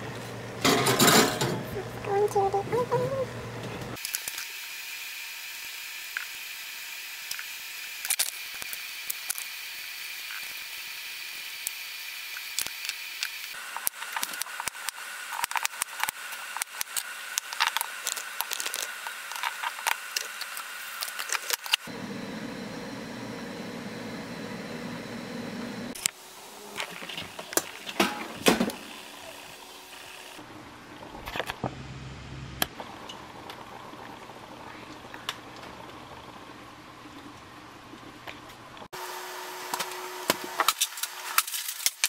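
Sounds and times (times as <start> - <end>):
steady low hum: 21.9 - 26.7.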